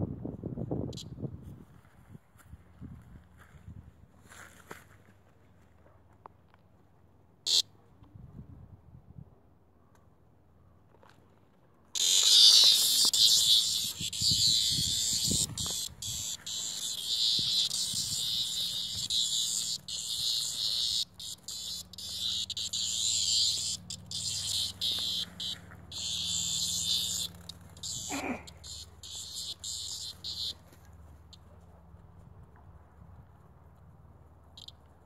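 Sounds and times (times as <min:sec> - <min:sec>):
cicada distress buzz: 0:12.0 - 0:30.7.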